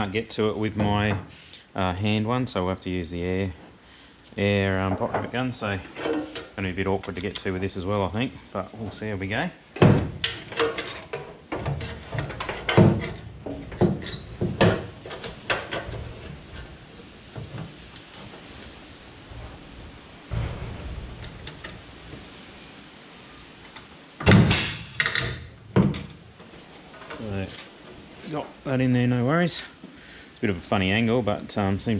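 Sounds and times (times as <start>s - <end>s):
metal knocks and clanks: 9.8s - 18.4s, 19.2s - 23.0s, 24.2s - 27.7s.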